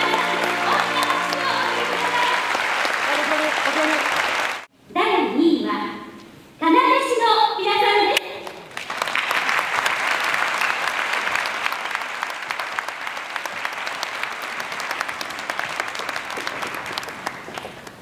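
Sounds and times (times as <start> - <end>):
audience applauding: 0.0 - 4.7, 8.6 - 18.0.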